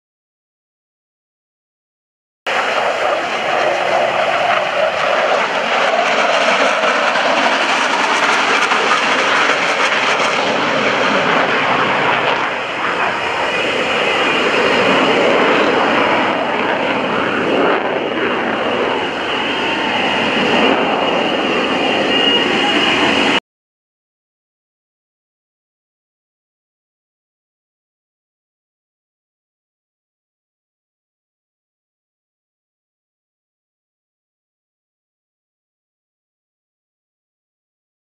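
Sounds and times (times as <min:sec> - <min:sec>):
jet engines flying by: 0:02.5 - 0:23.4.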